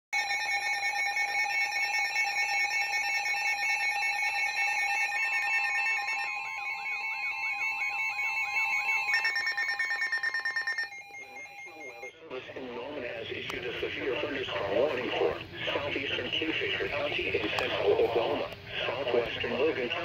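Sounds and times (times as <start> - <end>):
warbling electronic alarm tones: 0.2 - 12.2
steady alarm tone: 0.2 - 12.3
fast electronic beeping: 4.1 - 12.2.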